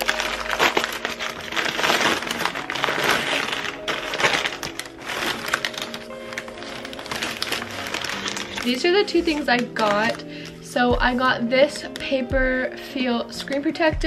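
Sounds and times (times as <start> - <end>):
paper mailer crinkling: 0.0 - 10.7.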